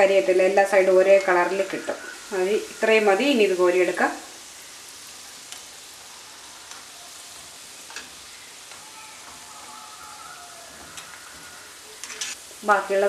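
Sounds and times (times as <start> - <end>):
dough sizzling in hot oil: 0.0 - 13.0.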